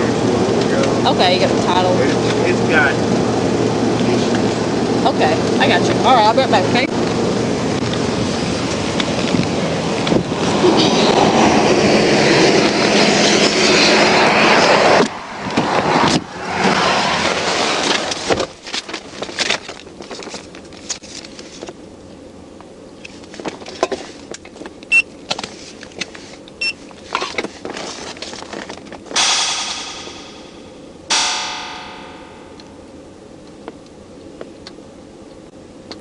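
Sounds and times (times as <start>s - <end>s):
wind rushing on microphone: 3.0s - 18.3s
vehicle passing close by: 7.1s - 18.4s.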